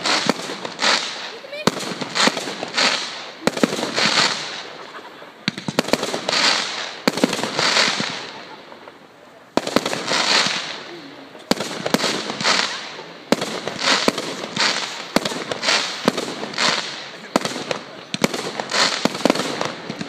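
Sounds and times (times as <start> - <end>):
firework shells bursting: 0.0 - 8.6
crackling hiss of fireworks: 0.0 - 20.0.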